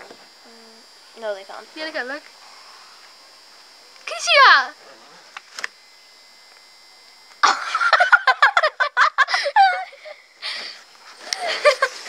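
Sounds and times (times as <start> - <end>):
girls giggling and laughing: 7.4 - 10.2, 11.2 - 12.0.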